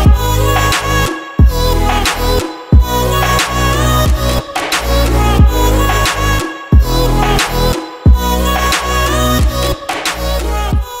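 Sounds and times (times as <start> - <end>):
deep bass notes dropping in pitch: 0.0 - 8.5
sustained melody: 1.5 - 8.5.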